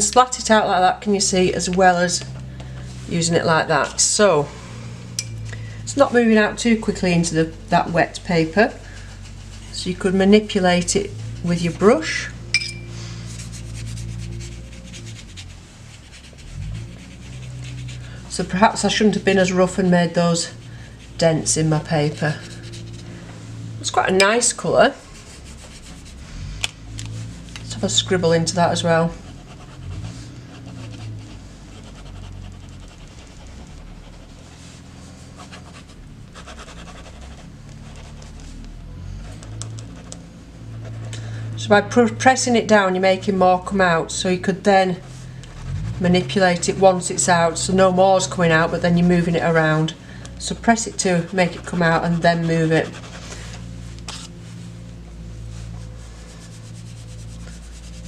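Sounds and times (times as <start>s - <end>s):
steady low hum: 0.0s - 58.0s
paintbrush rubbing on wet paper: 8.1s - 12.2s, 13.0s - 23.2s, 24.3s - 26.3s, 27.2s - 38.7s, 50.5s - 58.0s
pen nib scribbling on paper: 13.3s - 18.1s, 25.2s - 26.2s, 28.7s - 34.4s, 35.4s - 38.4s, 51.2s - 53.2s.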